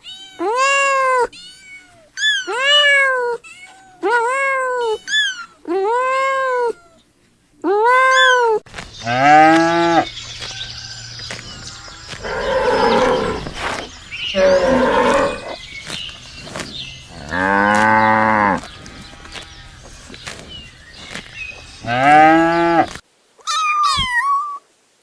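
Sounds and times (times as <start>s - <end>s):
kitten meowing: 7.8s - 8.6s, 23.4s - 24.6s
deep drawn-out animal calls: 11.7s - 15.6s.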